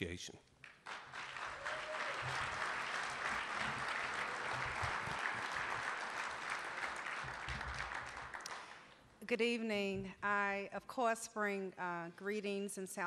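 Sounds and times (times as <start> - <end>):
audience applauding: 0.6 - 8.9.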